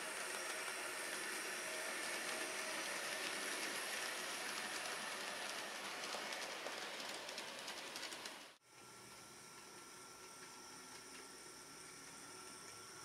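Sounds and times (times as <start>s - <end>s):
model train motor whirring: 0.0s - 9.3s.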